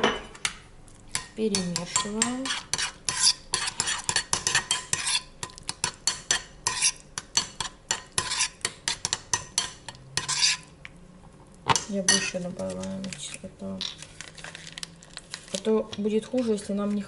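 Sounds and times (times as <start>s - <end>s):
metal spoon scraping ceramic bowl: 1.2s - 5.3s, 6.3s - 10.7s.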